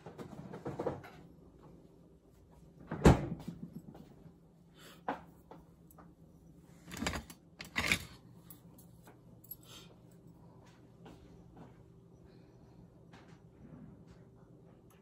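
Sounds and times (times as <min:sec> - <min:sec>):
knocks and clatter in kitchen: 0:00.0 - 0:01.8, 0:02.8 - 0:04.4.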